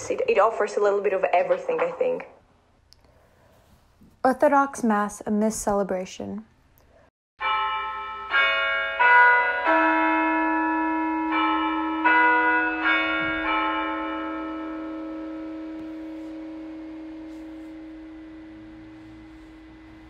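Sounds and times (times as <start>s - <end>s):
church bells ringing: 7.4s - 20.0s.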